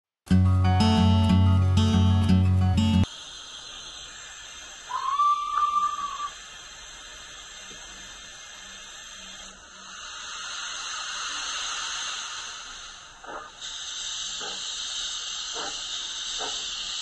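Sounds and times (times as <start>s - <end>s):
steam hissing: 3.0s - 17.0s
steam whistle blast: 4.9s - 6.4s.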